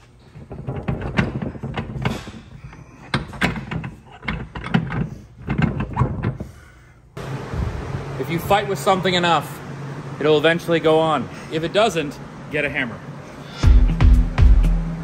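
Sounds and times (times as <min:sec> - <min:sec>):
metal parts clicking and knocking: 0:00.4 - 0:06.4.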